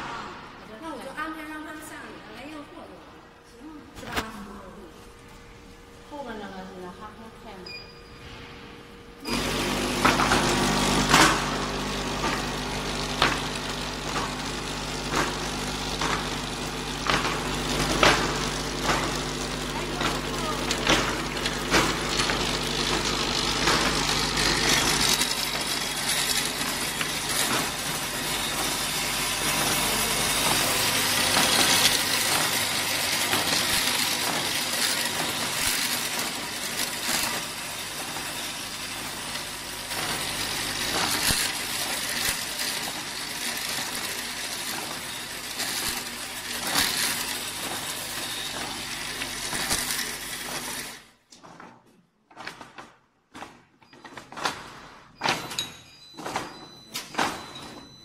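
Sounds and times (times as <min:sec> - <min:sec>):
low machine hum: 0:00.0 - 0:34.4
vibratory feeder rattling parts: 0:09.2 - 0:58.0.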